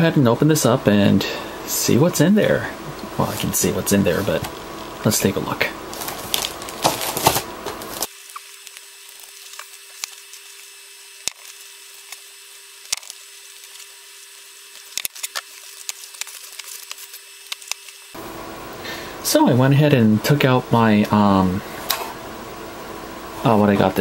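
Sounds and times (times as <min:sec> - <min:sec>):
thin steady hum: 0:00.0 - 0:24.0
plastic shrink-wrap crinkling: 0:05.9 - 0:12.3, 0:12.9 - 0:14.0, 0:14.7 - 0:18.1.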